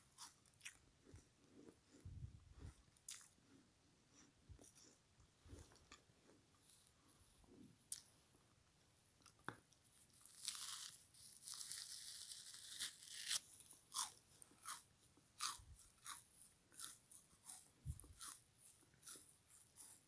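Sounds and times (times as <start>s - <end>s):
chewing crunches: 0.0s - 3.4s, 10.2s - 20.0s
frozen sponge crunching bite: 10.2s - 18.4s.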